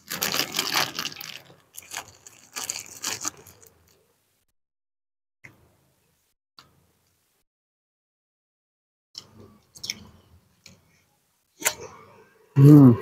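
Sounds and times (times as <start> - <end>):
crackly chewing: 0.0 - 4.0.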